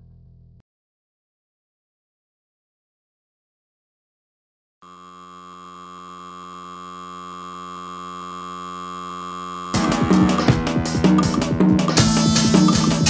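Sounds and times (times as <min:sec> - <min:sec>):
electronic drone of steady tones: 0:04.8 - 0:13.0
drum-driven band music: 0:09.8 - 0:13.0.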